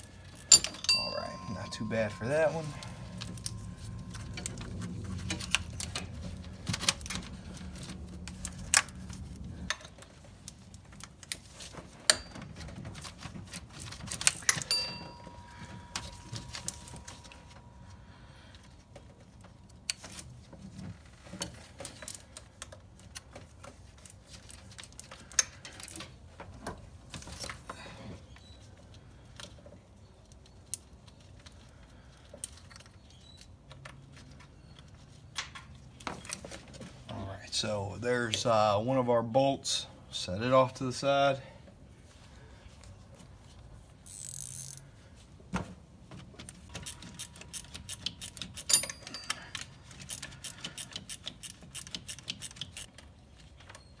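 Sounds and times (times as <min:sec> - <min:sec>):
low hum: 0:00.5 - 0:10.0.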